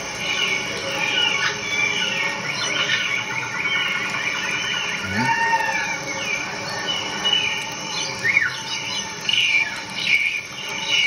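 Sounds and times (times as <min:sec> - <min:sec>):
bird-like chirps and whistles: 0:00.1 - 0:11.0.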